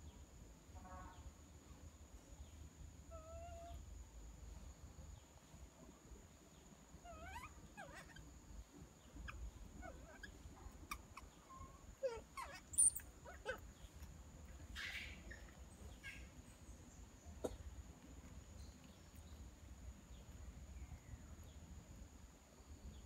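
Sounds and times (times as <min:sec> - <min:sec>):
infant monkey whimpering: 0:03.1 - 0:03.8, 0:07.0 - 0:08.2, 0:09.2 - 0:13.7.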